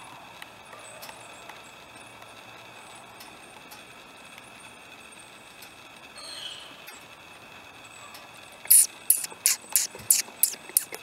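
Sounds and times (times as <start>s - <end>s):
woodpecker pecking bark: 8.7s - 11.0s.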